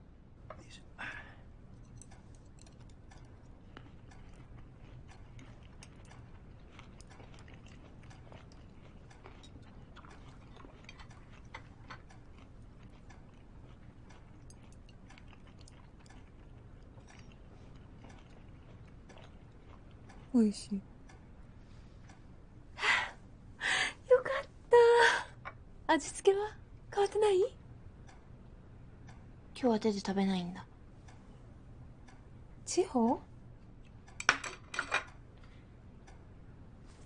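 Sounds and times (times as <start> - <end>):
low room hum: 0.0 - 37.0
soft chewing: 0.5 - 22.5, 33.5 - 37.0
chopsticks clinking on dishes: 1.8 - 13.4, 14.1 - 16.4, 34.2 - 35.2.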